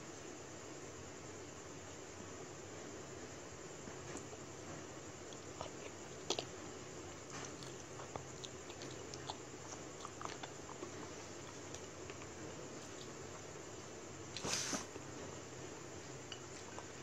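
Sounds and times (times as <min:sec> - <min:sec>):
steady background hiss: 0:00.0 - 0:17.0
person chewing: 0:05.2 - 0:13.5.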